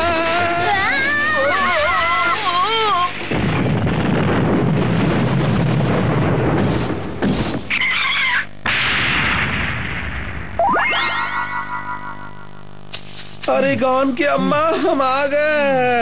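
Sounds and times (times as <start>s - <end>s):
noisy cartoon rumble: 0.0s - 5.4s
short warbling tone: 10.6s - 12.7s
hiss: 12.9s - 13.6s.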